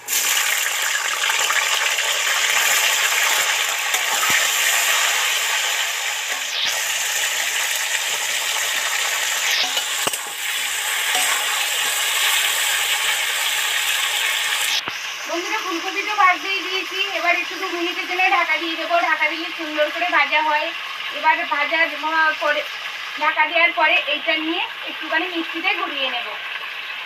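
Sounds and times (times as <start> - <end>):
vegetables sizzling in hot oil: 0.0 - 27.0.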